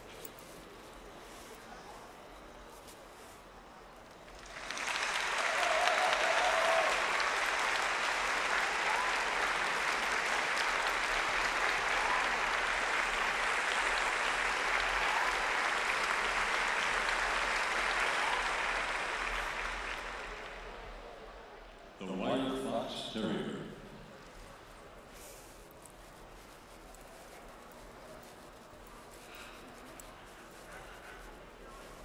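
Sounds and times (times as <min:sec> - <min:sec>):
applause: 0:04.1 - 0:21.5.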